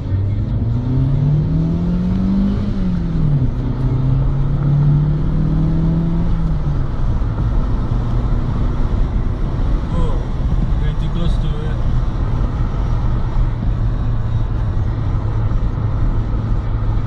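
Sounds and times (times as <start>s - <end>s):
low road rumble: 0.0s - 17.0s.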